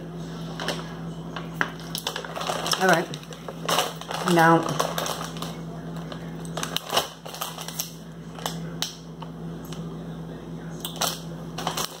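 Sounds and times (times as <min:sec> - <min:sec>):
steady low hum: 0:00.0 - 0:12.0
plastic packaging crinkling: 0:00.6 - 0:08.8, 0:10.8 - 0:12.0.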